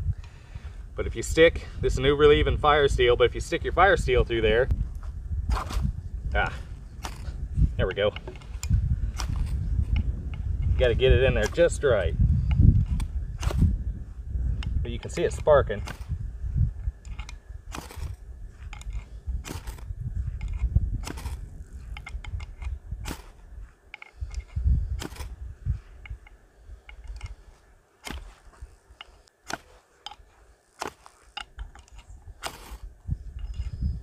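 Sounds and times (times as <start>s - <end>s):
low rumble: 0.0s - 27.5s
fire steel scraping on axe: 5.5s - 13.8s, 14.6s - 16.2s, 16.9s - 34.0s.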